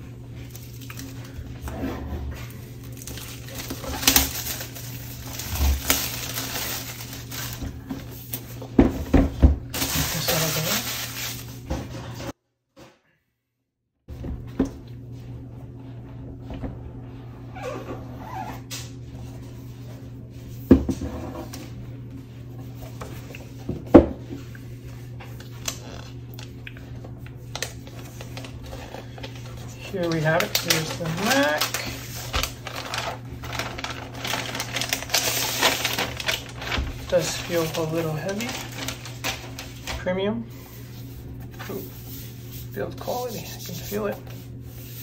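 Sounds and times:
low steady hum: 0.0 - 12.3, 14.1 - 45.0
plastic shrink-wrap rustling: 0.4 - 1.7, 2.4 - 8.6, 9.7 - 12.3, 27.5 - 45.0.

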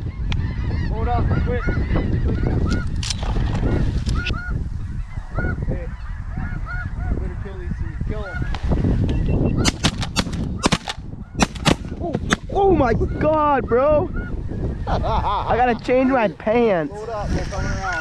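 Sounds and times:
snow geese honking: 0.0 - 3.0, 3.6 - 7.2, 7.9 - 8.8
shotgun shots: 9.6 - 12.5.

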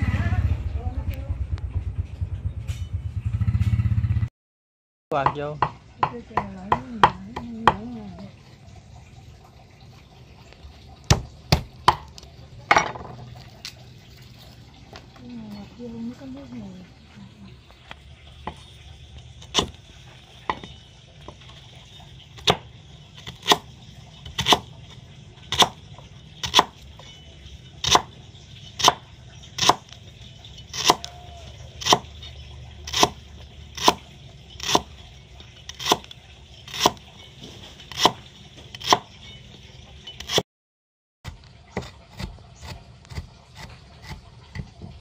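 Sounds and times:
cleaver chopping on wooden block: 5.2 - 7.9, 11.1 - 12.1, 26.4 - 26.8, 27.8 - 28.1, 29.6 - 29.9, 30.7 - 31.1.

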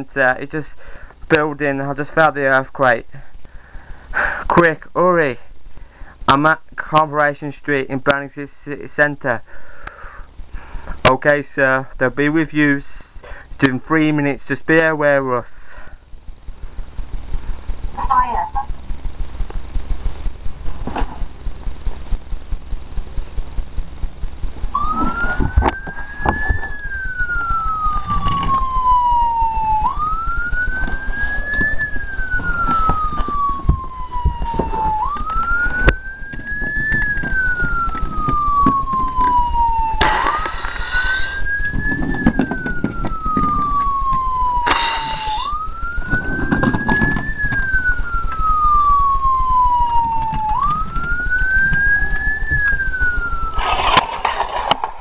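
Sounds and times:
toy siren wailing: 24.7 - 54.5
short bursts of noise: 40.0 - 42.3.

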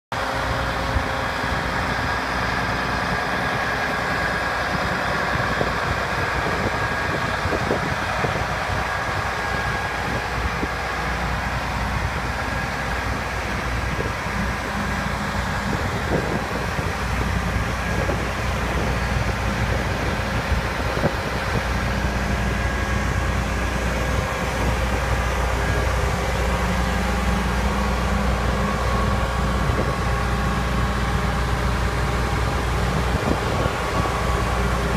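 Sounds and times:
diesel engine idling: 0.1 - 34.9.

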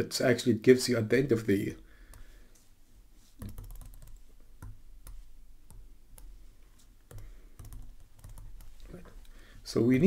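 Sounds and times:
stylus tapping on tablet screen: 3.4 - 6.4.

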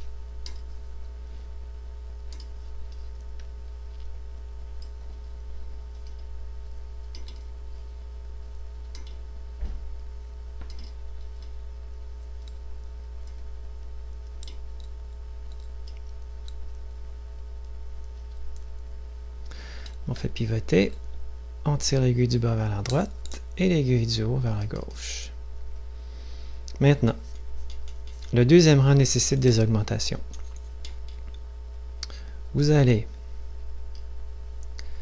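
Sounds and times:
steady low hum: 0.0 - 35.0
knitting needles clicking: 7.1 - 7.5, 8.9 - 9.2.

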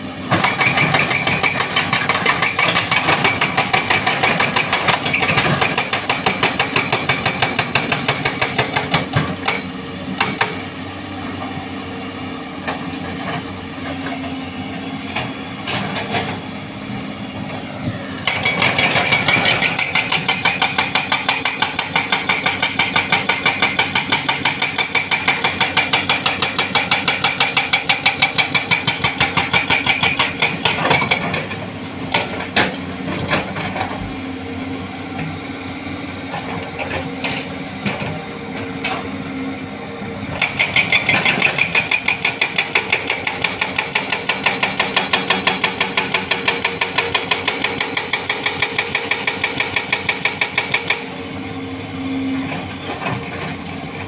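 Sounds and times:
hydraulic breaker hammering rock: 0.3 - 10.6, 18.2 - 34.0, 40.4 - 51.1.

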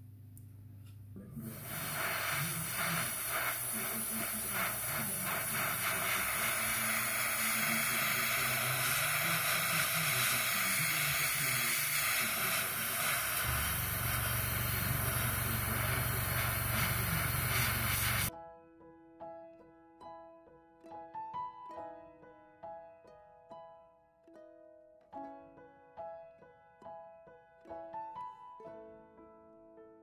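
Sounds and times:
airbrush spraying paint: 1.4 - 18.3.

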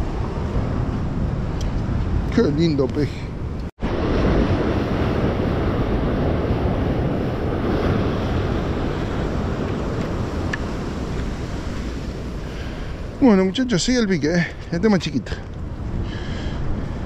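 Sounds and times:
wind rumbling on microphone: 0.0 - 17.0
sea surf washing against concrete: 3.8 - 15.5.

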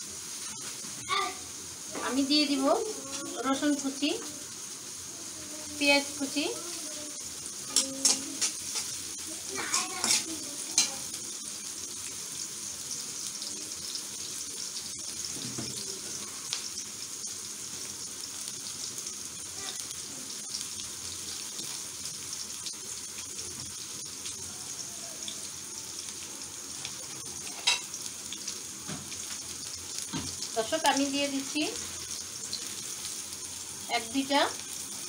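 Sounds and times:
onions sizzling in hot oil: 0.0 - 35.0
small crackles: 13.0 - 33.4.

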